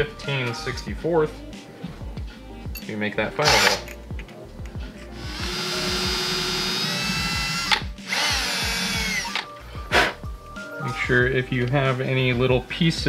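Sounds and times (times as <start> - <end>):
cordless drill whining: 3.4 - 3.9, 5.2 - 9.5.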